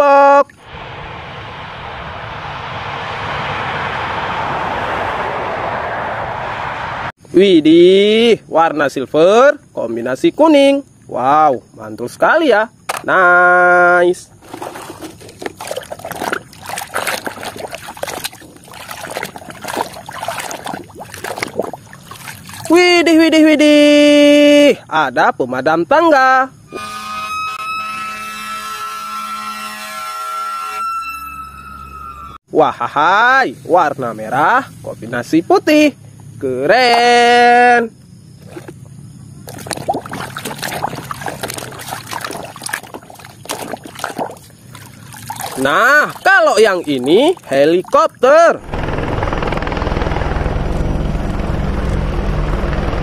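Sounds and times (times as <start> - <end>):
water sloshing in a basin: 14.4 - 23.0, 38.4 - 48.3.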